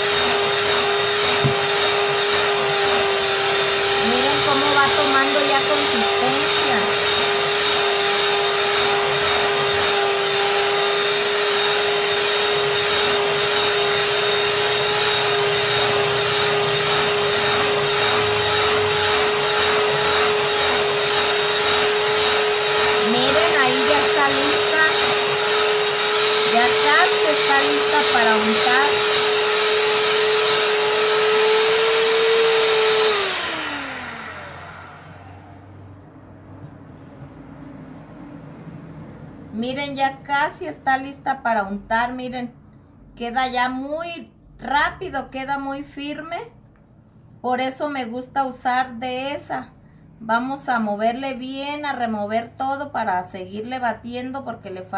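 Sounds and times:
electric hand mixer whipping: 0.0s - 36.8s.

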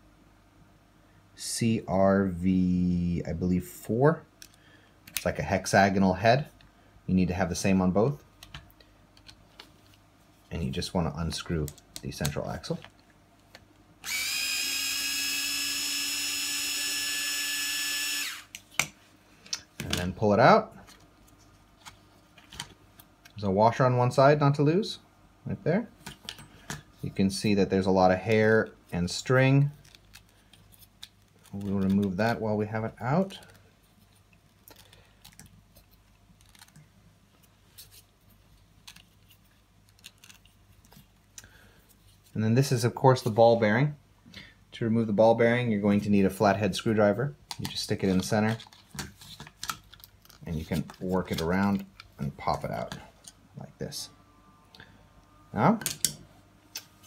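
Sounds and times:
electric screwdriver whining: 14.0s - 18.5s.

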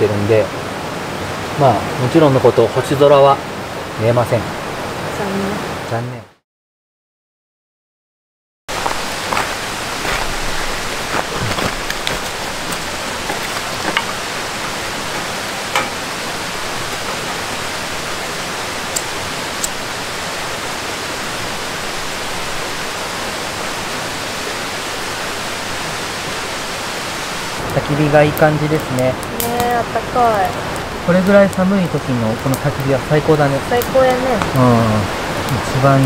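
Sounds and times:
campfire hissing: 0.0s - 5.9s, 8.7s - 36.0s
fire crackling and popping: 8.7s - 36.0s.

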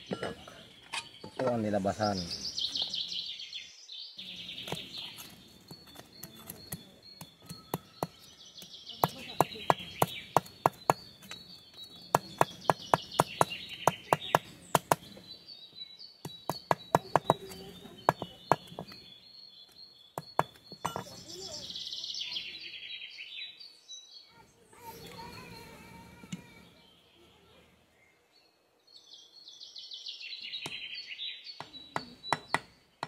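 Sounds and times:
birds chirping: 0.0s - 33.0s
tool knocking on wood: 9.0s - 11.1s, 12.1s - 15.0s, 16.3s - 19.0s, 20.2s - 21.1s.

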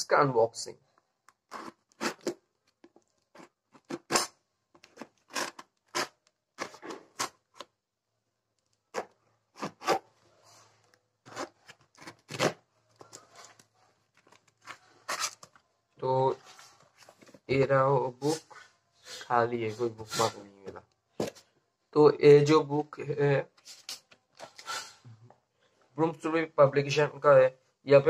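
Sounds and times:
knife slitting packing tape: 1.5s - 2.4s, 3.4s - 7.4s, 8.9s - 10.0s.

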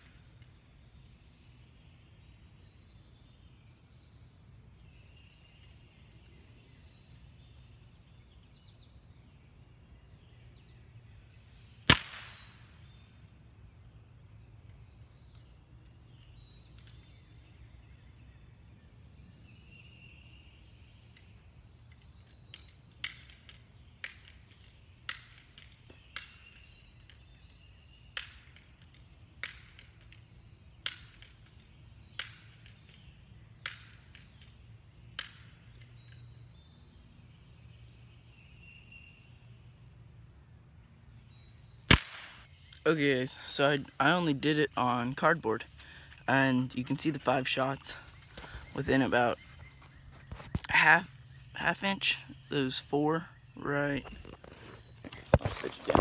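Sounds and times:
faint birds chirping: 0.0s - 56.0s
air pistol shot crack: 11.9s - 12.6s, 41.9s - 42.5s.

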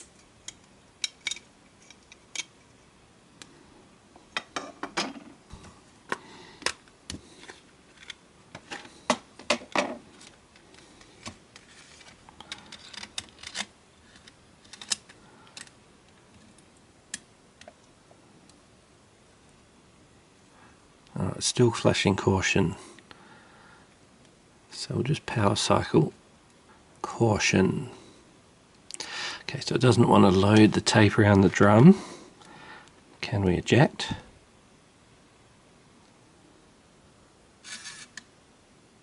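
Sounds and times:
plastic parts clicking and scraping: 6.1s - 17.8s.

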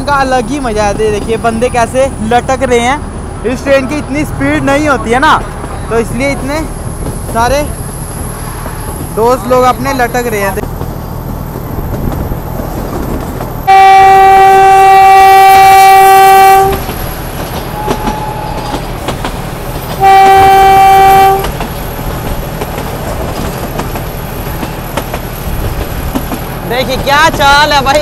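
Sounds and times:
train running noise: 0.0s - 28.0s
locomotive horn blasts: 13.7s - 16.8s, 17.8s - 18.7s, 20.0s - 21.5s.

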